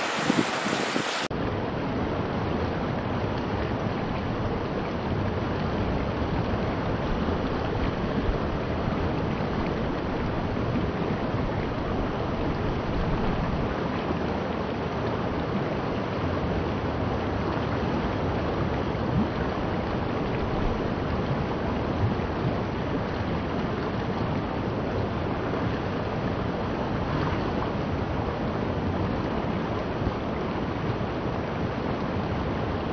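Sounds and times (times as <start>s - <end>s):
river water rushing over rocks: 0.0s - 1.3s.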